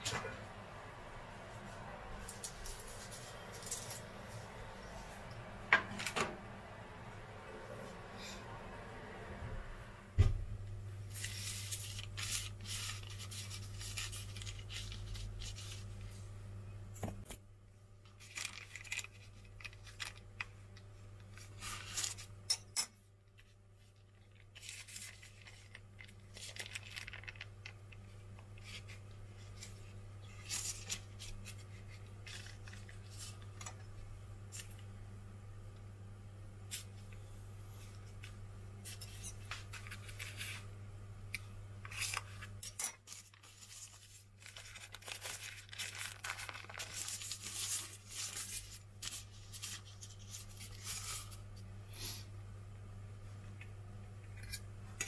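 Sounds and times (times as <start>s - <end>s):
low steady hum: 0.0s - 55.0s
parchment paper crinkling: 2.2s - 5.1s, 11.0s - 16.3s, 18.0s - 22.4s, 23.3s - 34.9s, 38.0s - 40.7s, 41.4s - 51.7s.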